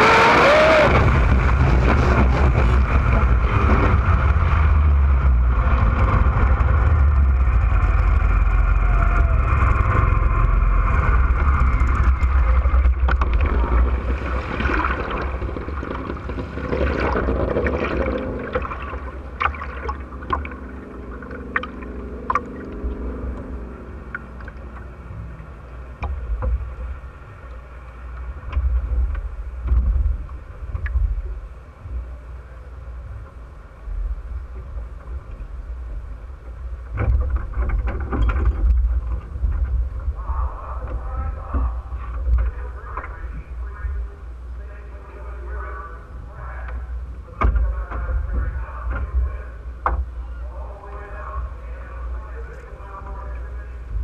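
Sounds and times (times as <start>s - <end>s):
low tone falling in pitch: 0.0s - 14.0s, 17.8s - 26.0s
wind and water rushing: 0.0s - 43.7s
water lapping and dripping on hull: 11.2s - 44.6s, 45.7s - 54.0s.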